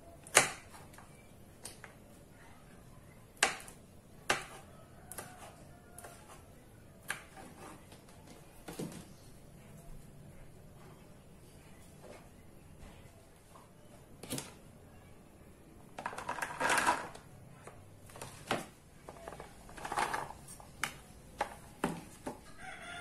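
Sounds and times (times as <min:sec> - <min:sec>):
beans clattering into plastic bowl: 0:16.0 - 0:17.2.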